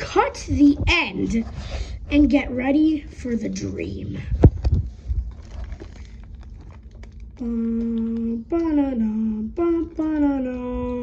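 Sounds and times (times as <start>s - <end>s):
plastic bag crinkling: 4.5s - 8.2s.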